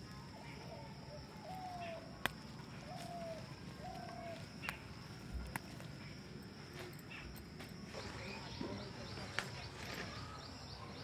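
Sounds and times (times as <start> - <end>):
bird calling: 0.0 - 11.0
plant stems snapping: 2.2 - 3.1, 3.9 - 5.9.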